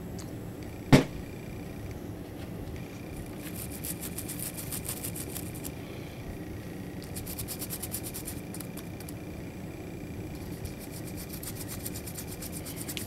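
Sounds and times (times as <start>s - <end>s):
toothbrush scrubbing: 3.4s - 5.7s, 7.1s - 8.8s, 10.4s - 13.0s.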